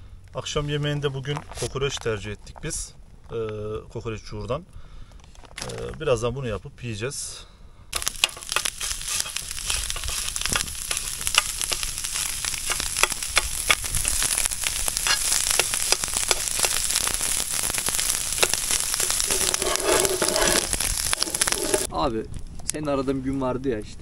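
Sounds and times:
fat crackling and popping: 5.1 - 6.1, 7.9 - 21.9
meat frying with sizzling hiss: 8.0 - 21.9.

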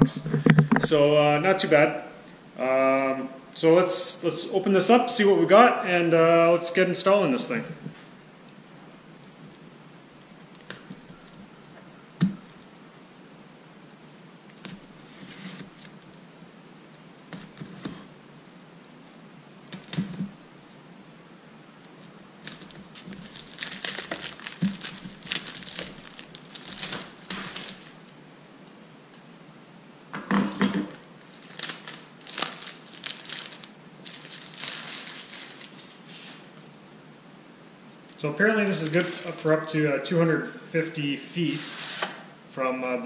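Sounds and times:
plastic shrink wrap crinkling: 21.9 - 28.2, 31.2 - 36.6, 38.1 - 39.5.

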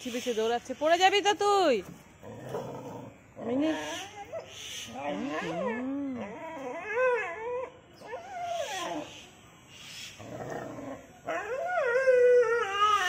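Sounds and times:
dog whining: 3.6 - 9.2.

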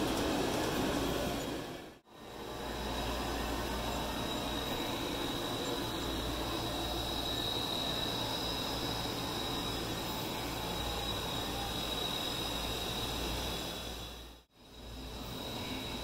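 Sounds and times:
model trains running: 0.0 - 16.0
high-pitched whine: 0.8 - 16.0.

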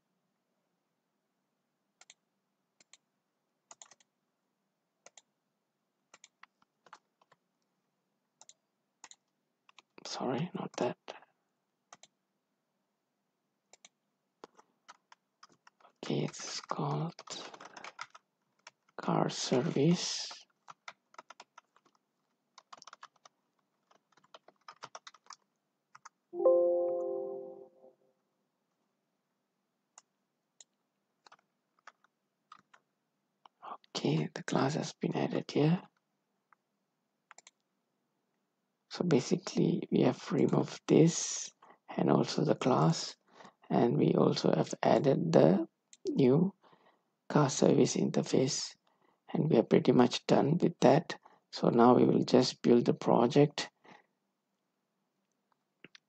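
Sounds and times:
computer keyboard typing: 3.7 - 4.1, 5.0 - 5.3, 6.1 - 7.4, 8.4 - 9.9, 11.9 - 12.2, 13.7 - 19.0, 20.5 - 26.2, 30.0 - 32.8, 37.3 - 37.6
mouse and keyboard clicks: 3.7 - 4.1, 37.3 - 37.6
computer alert chime: 26.4 - 27.8.

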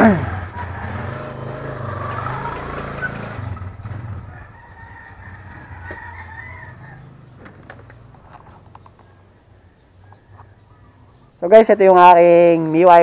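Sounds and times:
scooter engine idling: 0.0 - 11.3
rooster crowing: 0.5 - 2.6, 4.1 - 7.2.

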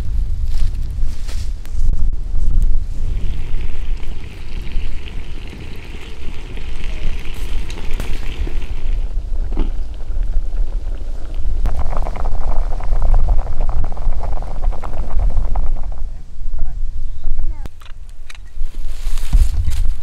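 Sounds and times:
wind rumbling on microphone: 0.0 - 20.0
wood fire crackling: 2.6 - 16.1
water boiling in a pot: 2.9 - 16.1.

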